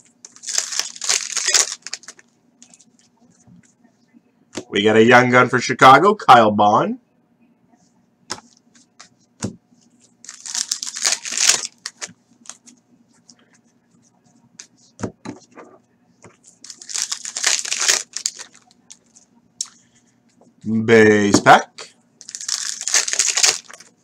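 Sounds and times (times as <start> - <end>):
foil pack tearing and crinkling: 0.3 - 2.2, 10.2 - 12.6, 16.6 - 18.7, 22.2 - 23.9.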